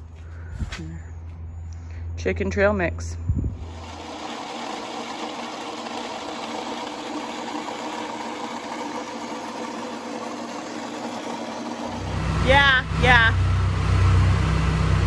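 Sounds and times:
grain grinder grinding corn: 3.6 - 13.1.

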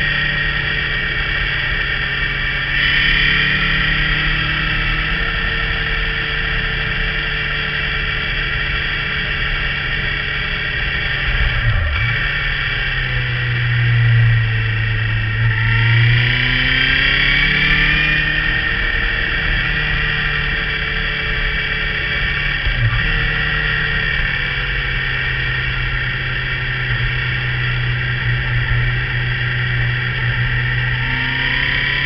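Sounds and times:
motorcycle engine riding: 0.0 - 32.0.

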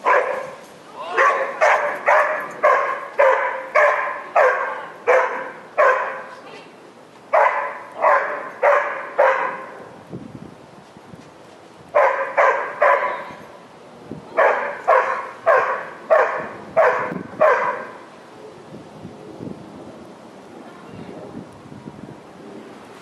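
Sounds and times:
dog barking: 0.0 - 0.6, 1.2 - 6.3, 7.3 - 9.7, 12.0 - 13.2, 14.4 - 18.0.

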